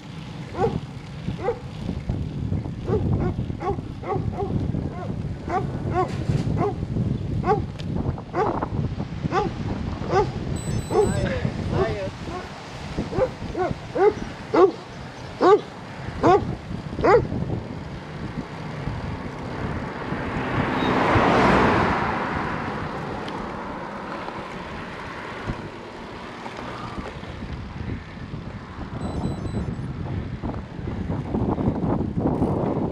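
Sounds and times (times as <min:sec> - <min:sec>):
dog barking: 0:00.6 - 0:00.8, 0:01.4 - 0:01.6, 0:02.9 - 0:06.8, 0:07.4 - 0:07.6, 0:08.4 - 0:08.6, 0:09.3 - 0:09.5, 0:10.1 - 0:11.2, 0:13.1 - 0:14.8, 0:15.4 - 0:17.3
car passing by: 0:11.0 - 0:16.2, 0:17.9 - 0:27.7.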